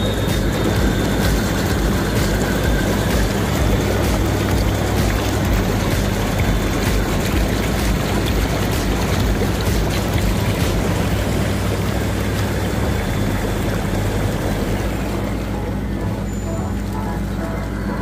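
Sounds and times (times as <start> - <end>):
bubbling water rushing: 0.0 - 18.0
hot tub pump hum: 0.0 - 18.0.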